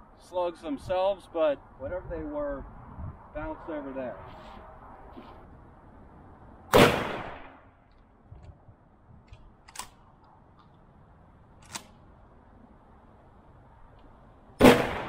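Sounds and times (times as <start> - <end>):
shotgun shot: 6.7 - 7.6, 14.6 - 15.0
sharp clicks: 9.2 - 10.8, 11.6 - 12.0.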